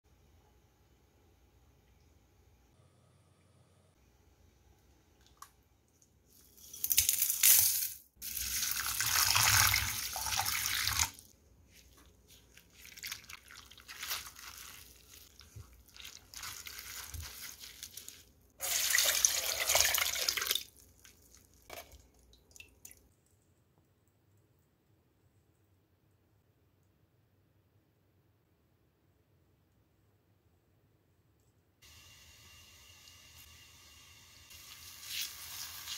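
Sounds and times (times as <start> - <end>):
water pouring: 8.2 - 11.3, 12.5 - 23.0, 34.5 - 35.9.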